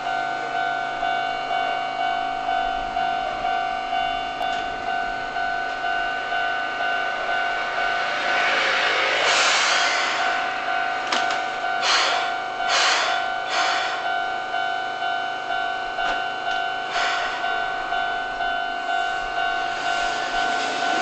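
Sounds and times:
level crossing bell clanging: 0.0s - 8.9s, 10.2s - 21.0s
train air hissing: 6.0s - 14.4s, 16.6s - 21.0s.

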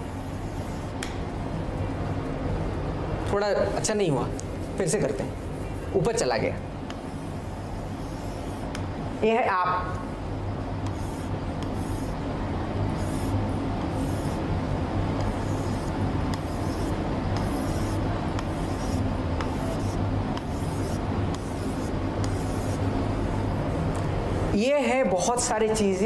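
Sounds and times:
steady low hum: 0.0s - 26.0s
writing tip scratching: 7.1s - 8.8s, 10.8s - 12.2s, 13.0s - 14.4s, 15.2s - 22.8s.

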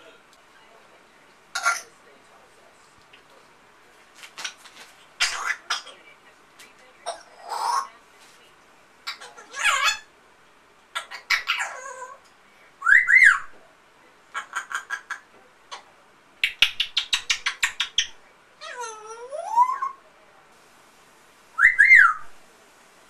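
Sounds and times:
parrot squawking: 1.5s - 2.0s, 5.2s - 6.0s, 7.0s - 7.9s, 9.0s - 10.1s, 10.9s - 13.5s, 14.3s - 15.8s, 16.4s - 20.0s, 21.6s - 22.3s
parrot whistling: 12.8s - 13.5s, 21.6s - 22.3s
parrot clicking chatter: 14.4s - 15.8s, 16.4s - 18.2s.

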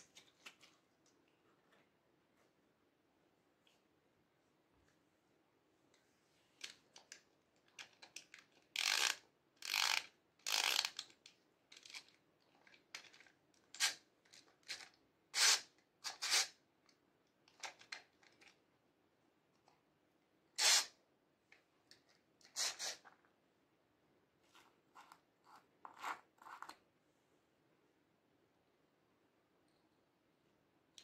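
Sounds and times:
plastic toy parts clicking: 6.6s - 15.6s.

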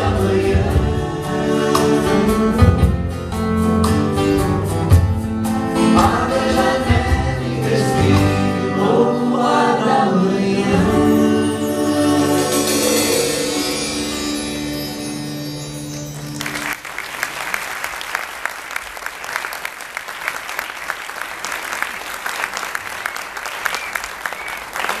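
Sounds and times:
vocal group and acoustic band: 0.0s - 15.1s
audience applause: 16.2s - 25.0s.

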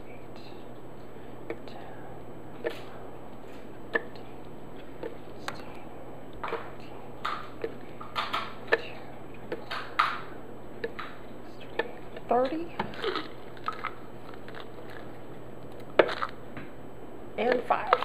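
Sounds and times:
capsules rustling in hand: 11.6s - 16.4s.

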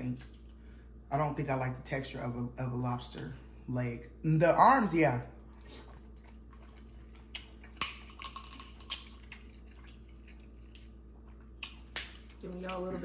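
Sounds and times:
crab shells cracking: 7.3s - 11.0s, 11.6s - 12.4s.

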